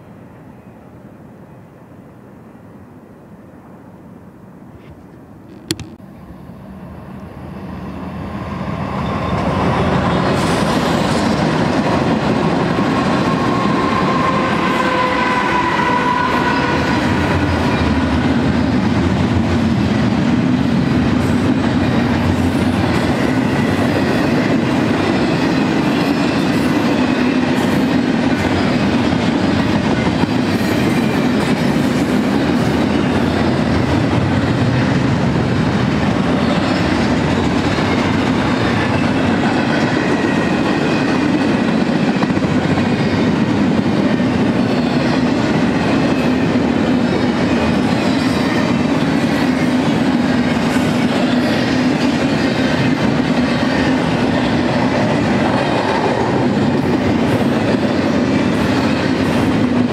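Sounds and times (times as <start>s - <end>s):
freight train rumble and wheel noise: 0.0s - 59.9s.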